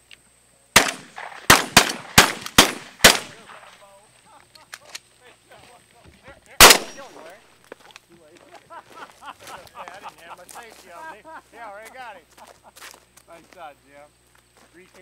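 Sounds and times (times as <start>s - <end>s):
shotgun blasts: 0.8s - 3.8s, 6.6s - 7.3s.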